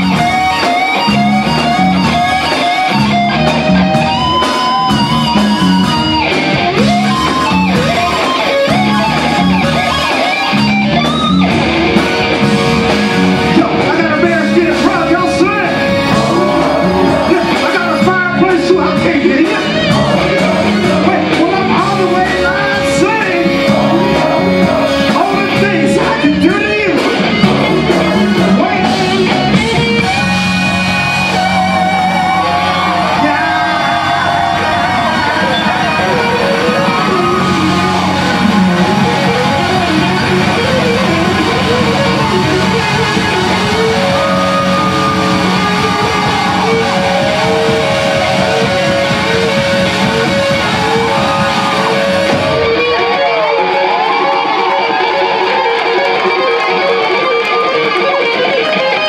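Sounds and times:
live funk band playing: 0:00.0 - 0:59.0
lead singer's voice: 0:13.5 - 0:29.6.

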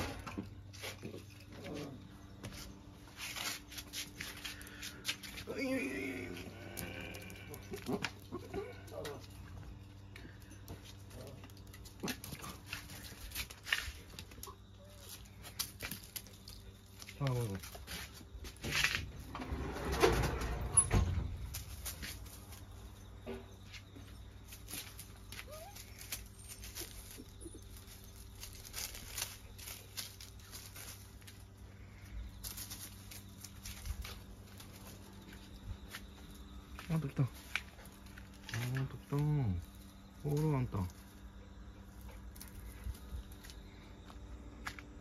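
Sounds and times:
faint low hum: 0:00.0 - 0:45.0
scuffs and clicks of movement: 0:00.0 - 0:45.0
footsteps in dry leaves: 0:00.6 - 0:07.3, 0:12.0 - 0:19.0, 0:21.4 - 0:44.8
dog whining faintly: 0:25.4 - 0:26.2.

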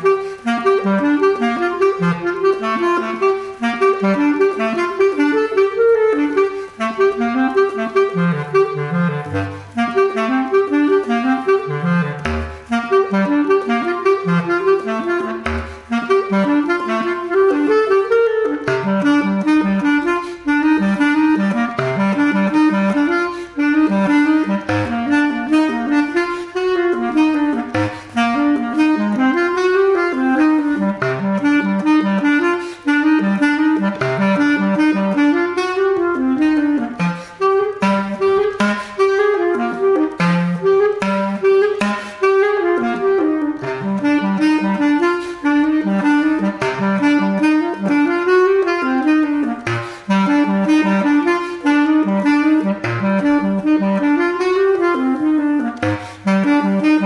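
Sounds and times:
bass clarinet playing fast notes: 0:00.0 - 0:57.0.

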